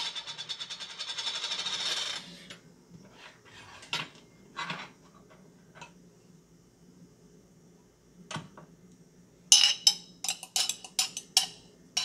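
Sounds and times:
metal spoon clinking glass jar: 9.5s - 11.6s.

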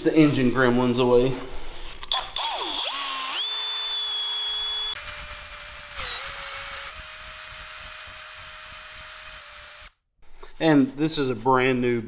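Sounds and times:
cordless drill motor whine: 2.4s - 10.0s.

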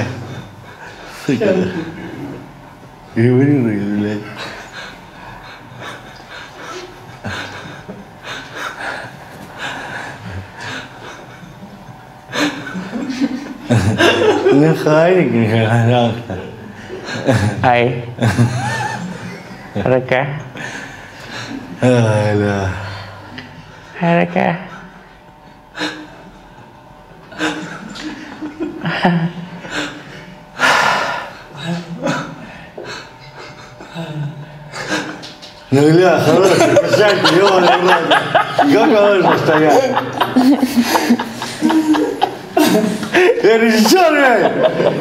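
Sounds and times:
person chuckling: 36.3s - 45.0s.

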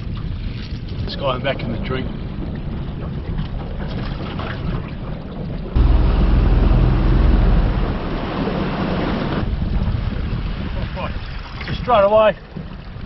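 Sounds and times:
wind: 0.0s - 13.0s
water noise: 1.8s - 13.0s
boat motor running: 5.8s - 9.6s.

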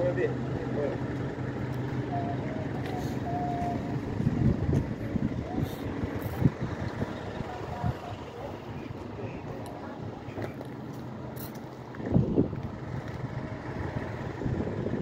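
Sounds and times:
truck engine humming: 0.0s - 15.0s
uneven low rumbling: 0.0s - 15.0s.

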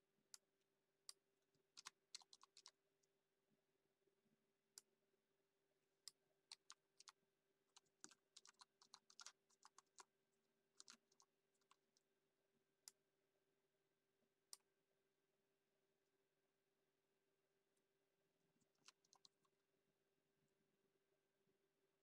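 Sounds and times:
computer keyboard typing: 1.8s - 2.8s, 6.5s - 7.1s, 7.7s - 10.1s, 10.8s - 11.9s, 18.6s - 19.4s.

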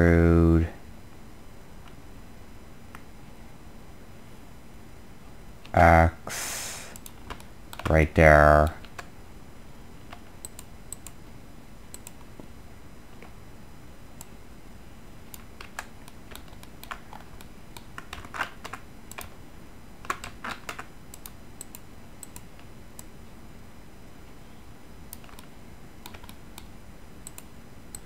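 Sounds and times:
faint low hum: 0.0s - 28.0s
computer keyboard keystrokes: 7.0s - 8.0s, 10.1s - 11.2s, 11.9s - 12.3s, 15.4s - 19.3s, 20.0s - 23.1s, 25.1s - 28.0s.

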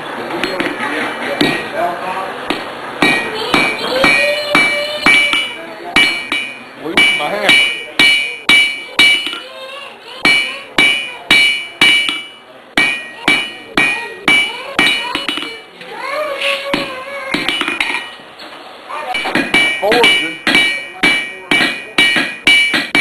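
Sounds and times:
hammer striking hot steel: 1.4s - 1.8s, 2.5s - 9.4s, 10.2s - 15.6s, 16.7s - 18.2s, 19.1s - 23.0s
anvil ringing: 2.5s - 9.5s, 10.2s - 15.6s, 19.1s - 23.0s.

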